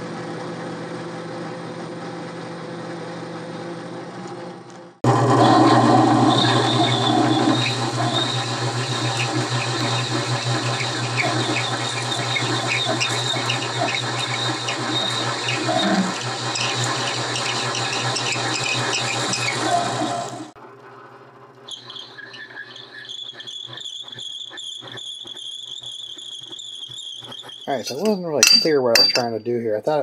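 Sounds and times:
lathe motor hum: 5.0 - 20.6
metal cutting noise: 5.0 - 20.6, 21.6 - 29.3.

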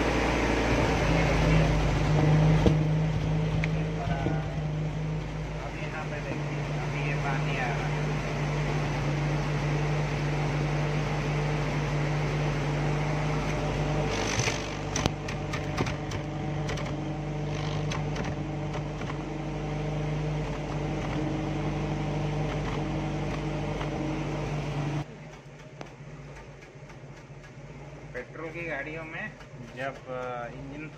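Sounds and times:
petrol engine idling: 0.0 - 19.4, 20.0 - 30.9
engine clicks: 13.4 - 19.2, 25.0 - 30.9.

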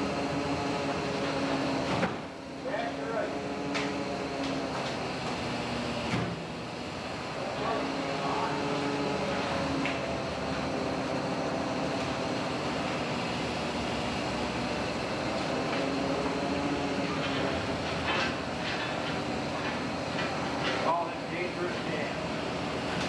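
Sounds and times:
boat engine drone: 0.0 - 23.0.

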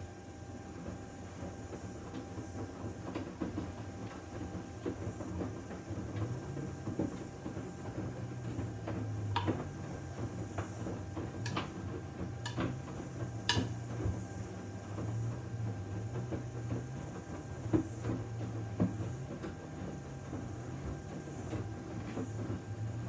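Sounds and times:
washing machine drum rumbling: 3.0 - 14.2
sharp clicks and knocks: 13.5 - 13.8.

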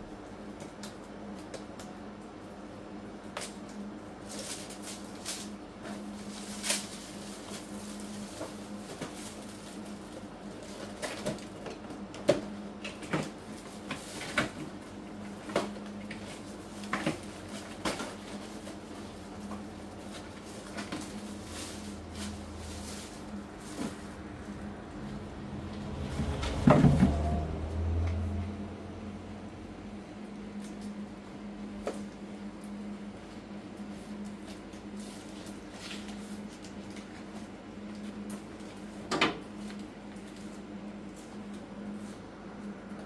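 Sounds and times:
steady low hum: 0.0 - 43.0
boxes and packets handled: 3.2 - 28.1, 33.8 - 42.3.

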